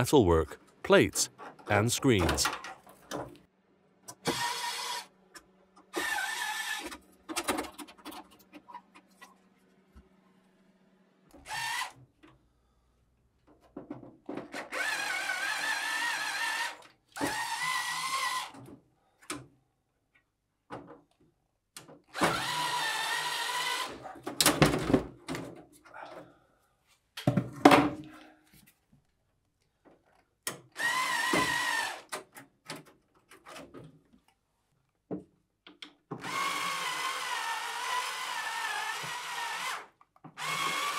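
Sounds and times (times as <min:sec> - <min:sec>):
electric screwdriver whirring: 0:30.8 - 0:32.0, 0:36.2 - 0:40.9.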